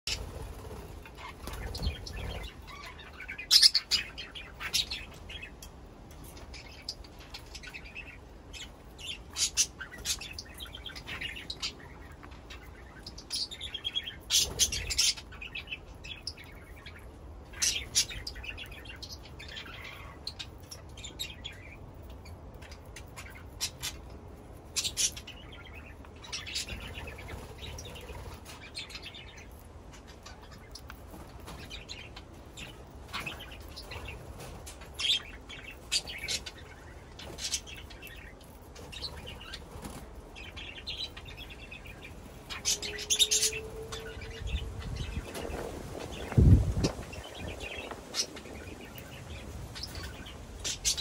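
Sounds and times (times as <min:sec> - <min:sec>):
wings fluttering: 0:00.1 - 0:03.8, 0:14.2 - 0:15.2, 0:26.4 - 0:29.6, 0:30.2 - 0:40.6, 0:42.0 - 0:51.0
budgerigars chirping: 0:00.1 - 0:05.6, 0:06.4 - 0:21.8, 0:47.1 - 0:51.0.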